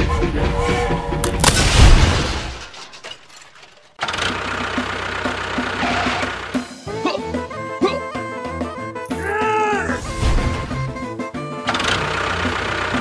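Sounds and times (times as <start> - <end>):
background music: 0.0 - 1.9, 4.4 - 13.0
loud crash: 1.2 - 3.8.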